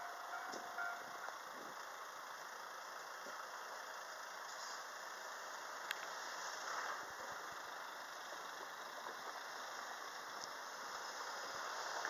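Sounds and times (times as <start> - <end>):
road traffic hum: 0.0 - 12.0.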